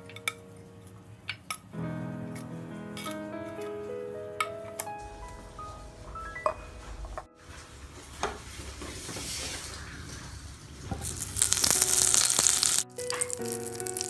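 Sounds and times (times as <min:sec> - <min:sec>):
butter sizzling in a pan: 0:11.0 - 0:14.0.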